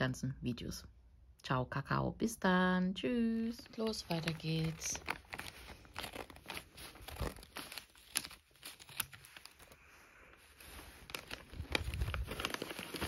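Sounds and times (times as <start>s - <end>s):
paper tearing and crinkling: 3.7s - 13.0s
scissors cutting wrapping paper: 3.8s - 9.6s.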